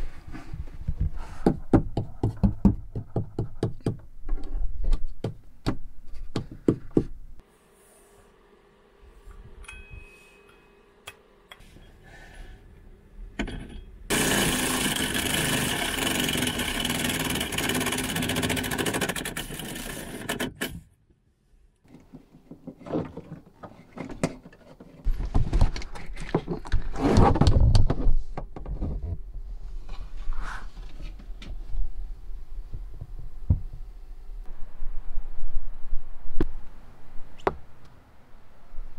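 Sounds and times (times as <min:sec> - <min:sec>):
power drill boring: 0:14.1 - 0:20.4.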